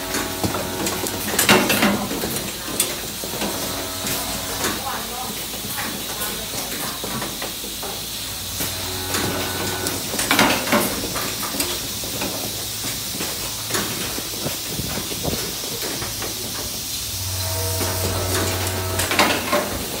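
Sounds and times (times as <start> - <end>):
low machine hum: 0.0 - 2.6, 17.0 - 20.0
pneumatic actuators hissing and clacking: 0.0 - 20.0.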